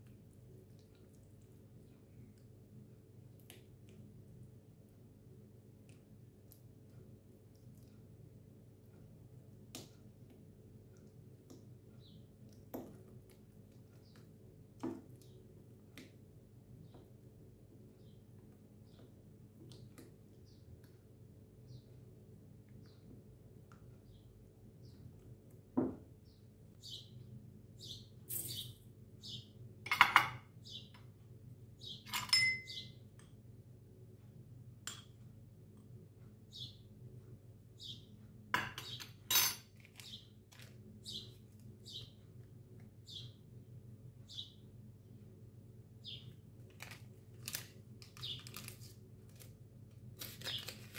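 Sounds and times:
spoon stirring thick batter: 0.0s - 21.5s
faint room hum: 0.0s - 50.9s
small bird chirping: 26.2s - 29.6s, 30.5s - 31.1s, 31.8s - 33.0s, 36.5s - 36.9s, 37.8s - 38.1s, 39.9s - 40.4s, 41.0s - 42.4s, 43.0s - 43.5s, 44.2s - 44.7s, 46.0s - 46.4s, 48.1s - 48.6s
metal kitchenware clinking: 32.1s - 32.8s, 38.6s - 39.7s.

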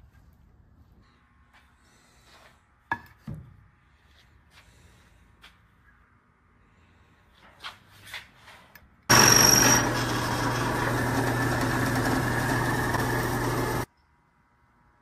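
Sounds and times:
high whine: 9.1s - 10.8s
drill press drilling wood: 9.1s - 13.9s.

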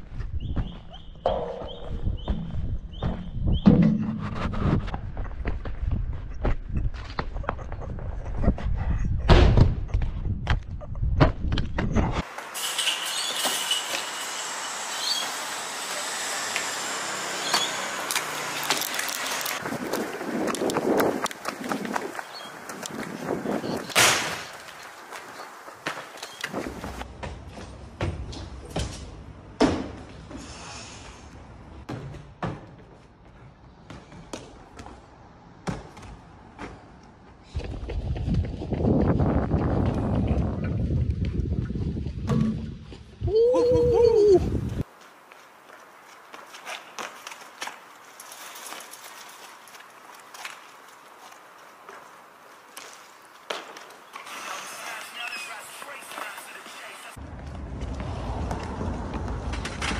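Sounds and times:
wind rumbling on microphone: 0.0s - 12.2s, 19.6s - 24.5s, 37.4s - 44.9s
shoes and hands thudding on concrete: 2.2s - 3.7s
steady outdoor hiss: 12.2s - 27.2s, 44.6s - 57.3s
running footsteps on concrete: 19.6s - 28.2s, 32.8s - 42.2s, 44.8s - 54.1s, 55.0s - 59.6s.

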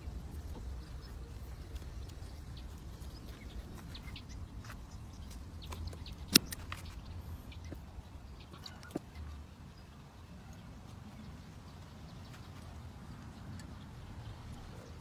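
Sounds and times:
blades clicking and branches rustling: 0.0s - 9.3s
shears snipping twig: 5.7s - 7.0s.

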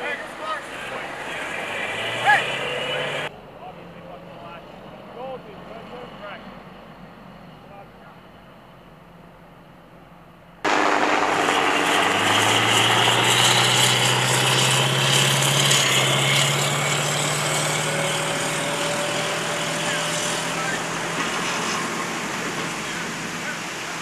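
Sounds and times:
diesel engine running hard: 0.0s - 6.6s, 10.7s - 24.0s.

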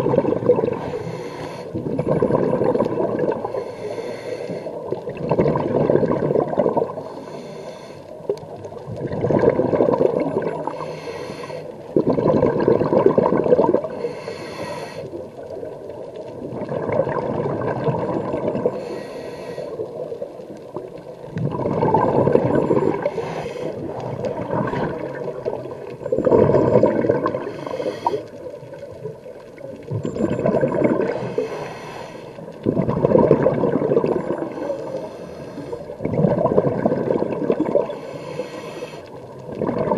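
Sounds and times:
exhaust bubbles bubbling: 0.0s - 1.0s, 1.8s - 3.6s, 4.9s - 7.0s, 8.7s - 10.7s, 11.9s - 14.0s, 16.3s - 18.8s, 20.7s - 23.2s, 23.8s - 27.7s, 28.6s - 31.3s, 32.6s - 34.9s, 35.9s - 38.0s, 39.4s - 39.9s
regulator hiss on inhale: 0.7s - 2.0s, 3.3s - 5.0s, 6.9s - 8.4s, 10.5s - 12.0s, 13.8s - 15.5s, 18.6s - 20.2s, 22.9s - 24.2s, 27.3s - 28.7s, 31.1s - 32.6s, 34.3s - 36.0s, 37.8s - 39.4s.

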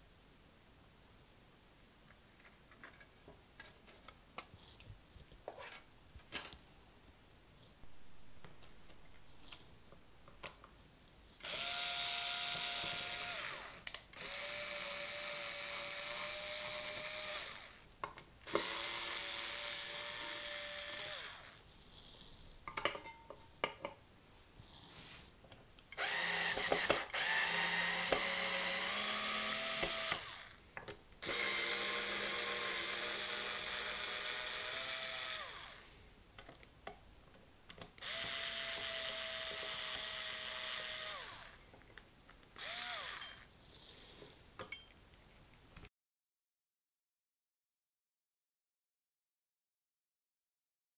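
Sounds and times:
electric screwdriver whine: 11.4s - 17.8s, 18.5s - 21.6s, 26.0s - 30.6s, 31.2s - 35.9s, 38.0s - 41.6s, 42.6s - 43.5s.

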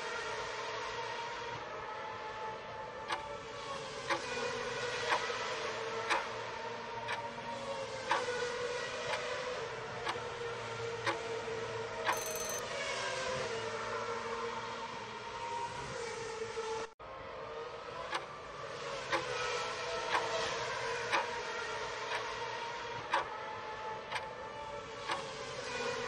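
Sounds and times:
countdown timer ticking: 12.1s - 12.6s
short high ding: 12.1s - 12.6s.

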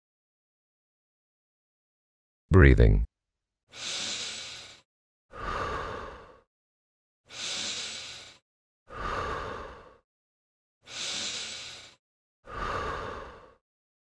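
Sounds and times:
person breathing audibly: 3.7s - 6.5s, 7.3s - 10.0s, 10.8s - 13.6s.

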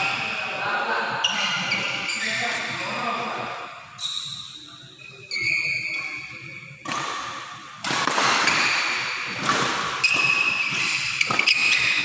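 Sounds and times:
shoes squeaking on court: 1.2s - 2.8s, 4.0s - 6.4s, 10.0s - 12.0s
racket hitting shuttlecock: 6.8s - 12.0s.

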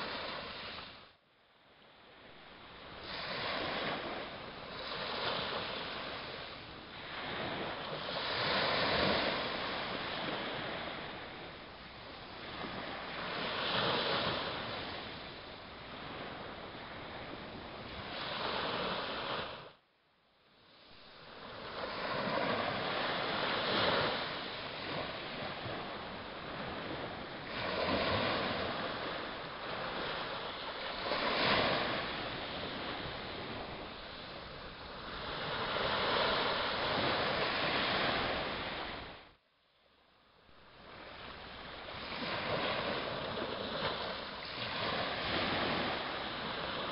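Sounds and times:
sea waves breaking on beach: 0.0s - 1.0s, 2.8s - 19.8s, 21.2s - 39.3s, 40.8s - 46.9s.

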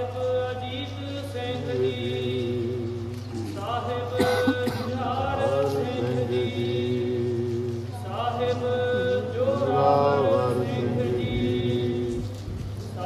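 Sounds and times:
person singing devotional hymn: 0.0s - 13.0s.

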